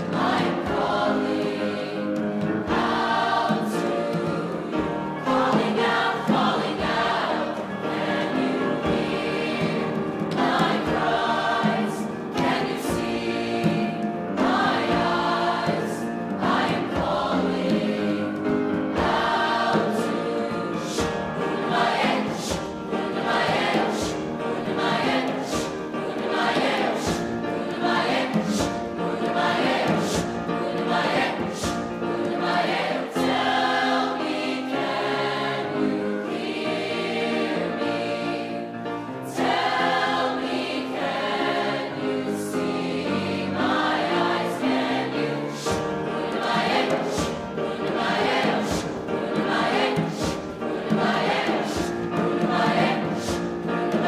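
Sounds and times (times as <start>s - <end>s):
grand piano: 0.0s - 54.0s
youth choir singing: 0.0s - 54.0s
djembe beating: 46.2s - 54.0s.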